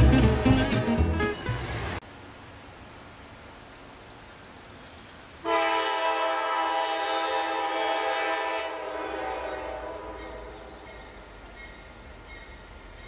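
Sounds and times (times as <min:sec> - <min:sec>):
locomotive air horn: 0:05.4 - 0:10.8.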